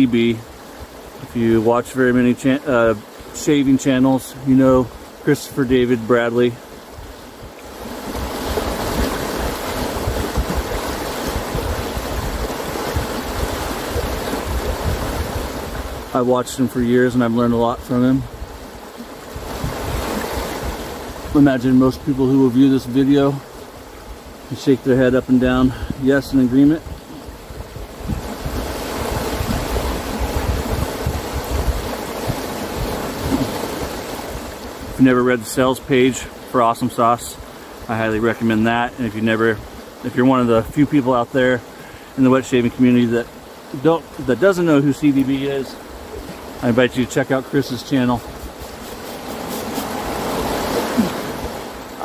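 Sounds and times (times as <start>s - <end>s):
river rushing over rapids: 0.0s - 16.9s, 18.2s - 25.4s, 26.2s - 39.0s, 41.6s - 52.0s
wind buffeting microphone: 6.9s - 16.1s, 18.3s - 21.4s, 25.4s - 34.7s
river rapids rushing: 28.0s - 34.9s, 41.6s - 52.0s.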